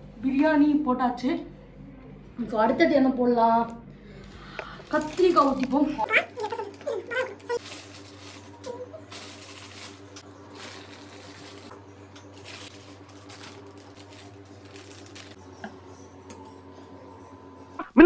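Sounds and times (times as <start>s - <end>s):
steady low hum: 0.0s - 18.0s
plastic and foil packets rustling: 4.4s - 15.4s.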